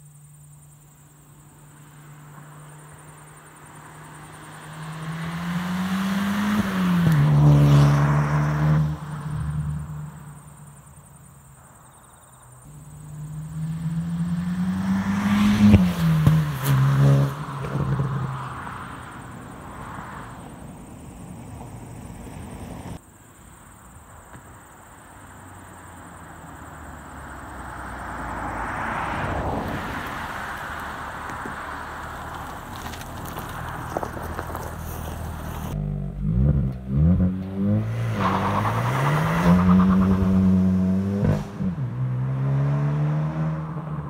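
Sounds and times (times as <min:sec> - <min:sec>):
car approaching: 0:00.1 - 0:44.0
car accelerating: 0:02.1 - 0:10.2, 0:12.7 - 0:20.0, 0:27.2 - 0:44.0.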